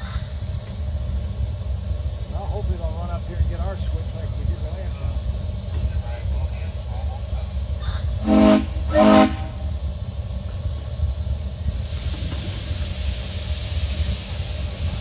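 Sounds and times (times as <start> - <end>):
steady low rumble: 0.0 - 15.0
steady steam hiss: 0.0 - 15.0
steam locomotive whistle toots: 8.2 - 9.7.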